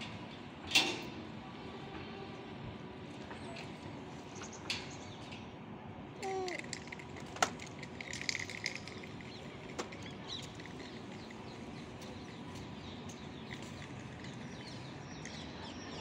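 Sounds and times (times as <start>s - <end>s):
small birds chirping: 8.1s - 16.0s.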